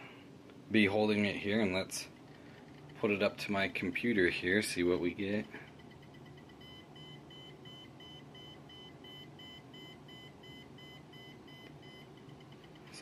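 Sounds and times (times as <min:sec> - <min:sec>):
meter alarm beeping: 0:05.6 - 0:13.0.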